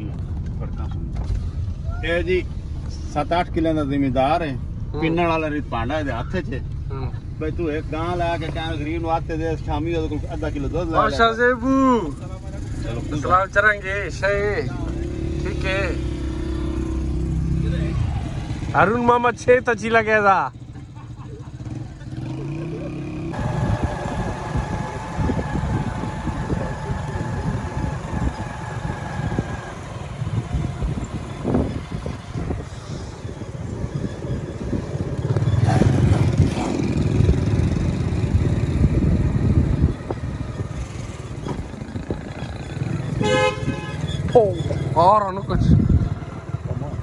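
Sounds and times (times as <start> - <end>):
motorcycle engine rumble: 0.0 - 47.0
road noise: 0.0 - 47.0
wind noise: 23.4 - 47.0.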